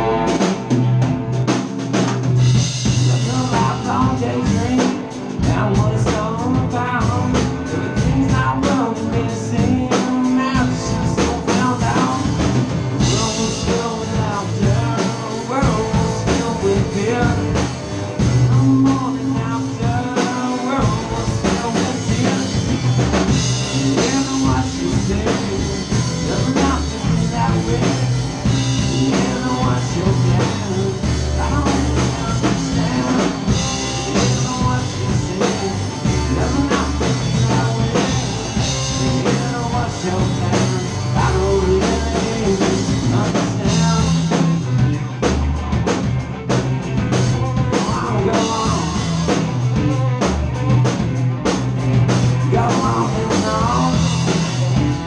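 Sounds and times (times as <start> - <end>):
drum kit: 0.0 - 55.0
electric guitars: 0.0 - 55.0
man singing: 2.8 - 45.4, 46.9 - 51.0, 52.0 - 55.0.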